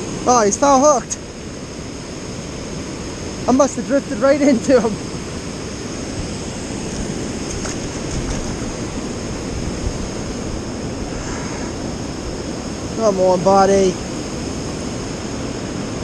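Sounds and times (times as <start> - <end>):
low rumble: 7.8 - 12.9.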